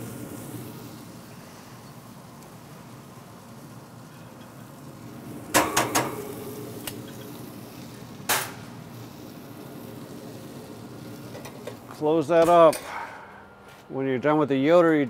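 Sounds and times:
metal tongs clanking on grate: 5.5s - 7.4s, 8.3s - 8.6s.

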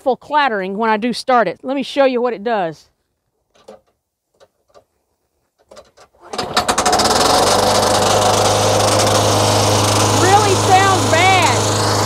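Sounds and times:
lawn mower engine running: 6.2s - 12.0s.

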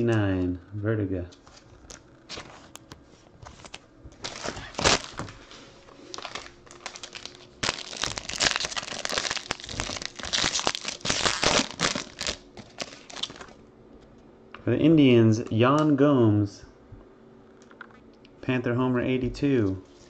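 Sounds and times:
foil wrapper crinkling: 3.5s - 13.6s.

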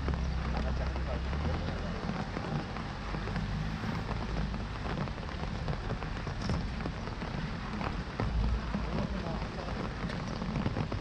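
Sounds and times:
heavy rain on water: 0.0s - 11.0s
low rumble: 0.0s - 11.0s.

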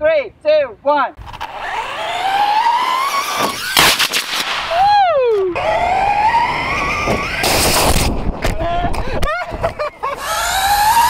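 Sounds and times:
electric motor whining: 1.2s - 3.8s, 5.5s - 9.2s, 10.0s - 11.0s
rocket motor blast: 1.2s - 8.6s, 10.1s - 11.0s
pitched sound sliding down: 1.3s - 3.8s, 4.6s - 8.7s.

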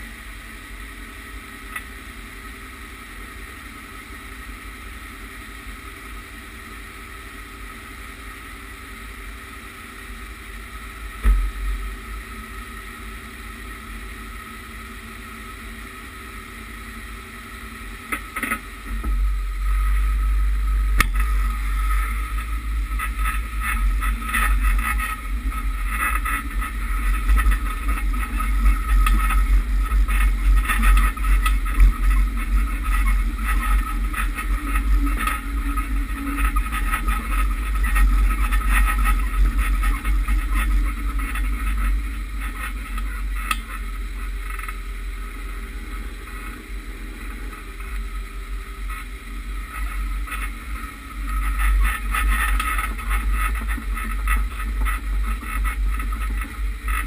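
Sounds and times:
vehicle engine idling: 0.0s - 57.0s
wind and tyre rumble: 0.0s - 57.0s
rattles and bumps: 18.1s - 46.6s.

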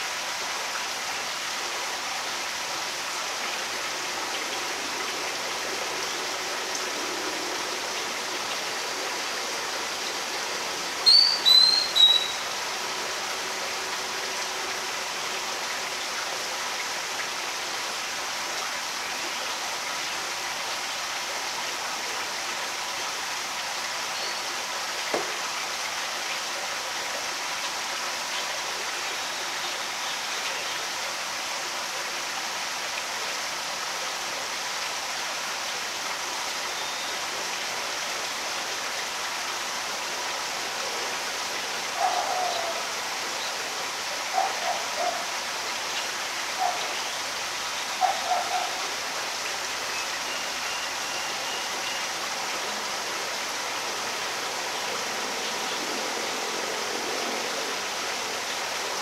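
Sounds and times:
bird chirping: 11.1s - 12.4s.

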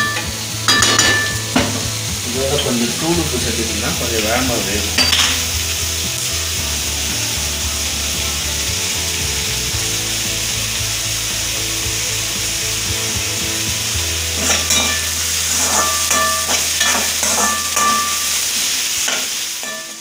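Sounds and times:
onions sizzling in oil: 0.0s - 20.0s
spatula scraping a pan: 14.4s - 20.0s.

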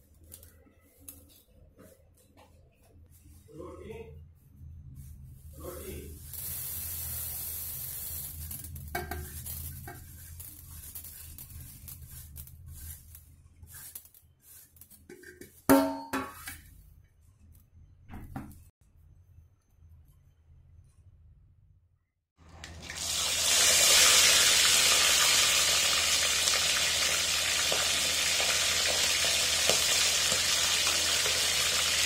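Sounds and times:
seeds rattling on metal: 6.2s - 15.1s.

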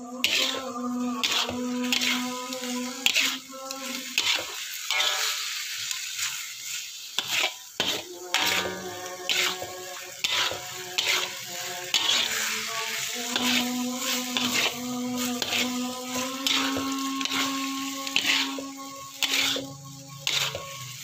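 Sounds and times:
light frying sizzle: 0.0s - 21.0s
spatula scraping a wok: 0.0s - 21.0s.

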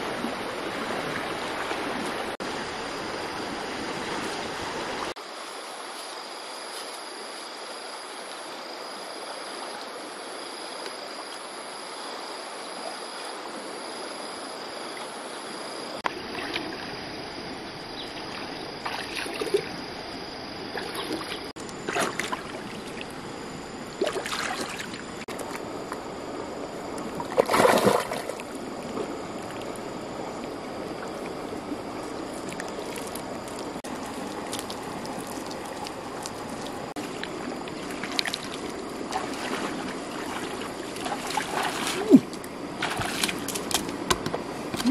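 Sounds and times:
shallow stream running: 0.0s - 44.9s
water splashing: 18.2s - 19.8s, 20.7s - 23.2s, 23.9s - 25.6s, 27.0s - 29.8s, 30.4s - 44.9s.

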